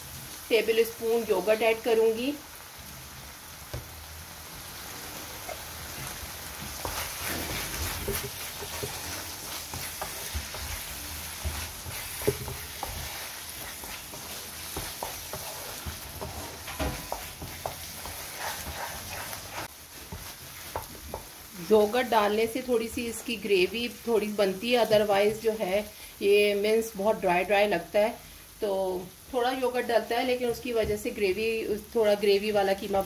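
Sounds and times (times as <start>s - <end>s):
meat sizzling in a frying pan: 0.0s - 33.0s
spatula scraping a pan: 5.4s - 21.4s.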